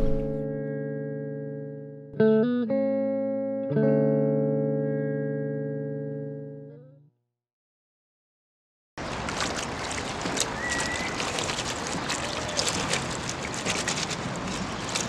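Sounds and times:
water sloshing and splashing: 9.0s - 15.0s.

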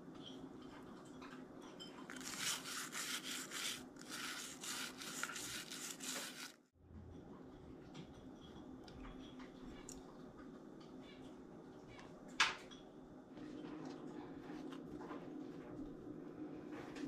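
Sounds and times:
faint steady hum: 2.0s - 17.0s
toothbrush scrubbing skull: 2.1s - 6.7s.

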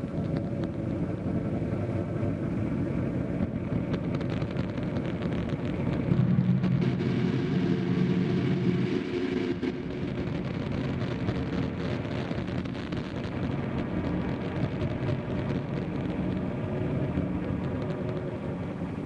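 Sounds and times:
crackling distorted noise drone: 0.0s - 19.0s
held low tones: 5.6s - 12.7s.

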